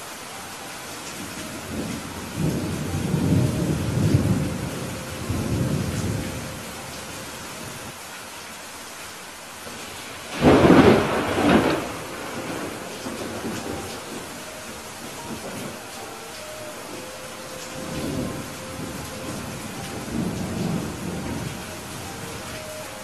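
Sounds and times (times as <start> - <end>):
steady rain: 0.0 - 23.0
rolling thunder rumble: 1.2 - 7.9, 9.9 - 22.7
loud thunder clap: 10.3 - 13.6.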